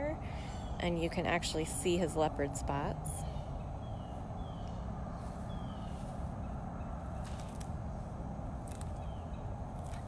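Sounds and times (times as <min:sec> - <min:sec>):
steady low rumble: 0:00.0 - 0:10.0
bird chirps: 0:03.2 - 0:07.6, 0:08.8 - 0:10.0.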